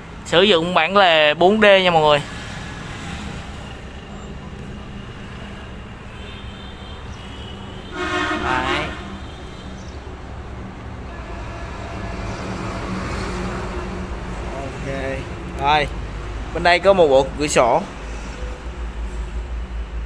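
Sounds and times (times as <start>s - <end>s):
distant road traffic rumble: 0.0s - 20.0s.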